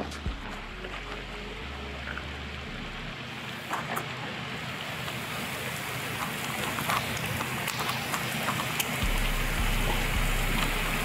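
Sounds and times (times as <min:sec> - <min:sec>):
low rumble: 0:00.0 - 0:03.2, 0:09.0 - 0:11.0
heavy rain pouring: 0:00.0 - 0:11.0.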